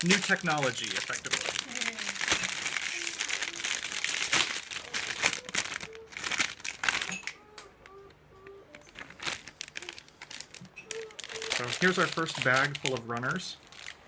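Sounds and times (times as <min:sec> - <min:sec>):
plastic bags crinkling: 0:00.0 - 0:08.0, 0:08.7 - 0:14.0.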